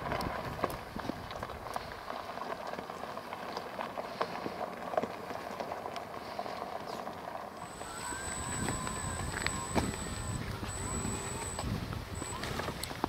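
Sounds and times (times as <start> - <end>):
tyres crunching over gravel: 0.0 - 8.0.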